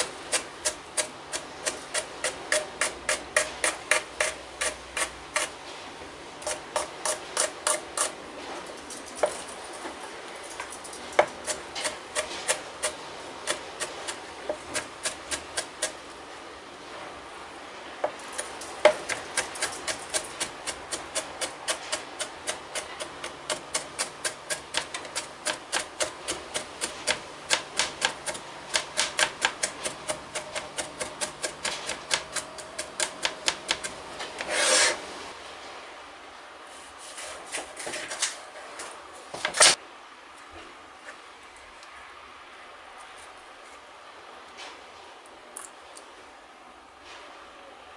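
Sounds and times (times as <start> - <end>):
knife chopping on cutting board: 18.8 - 34.9.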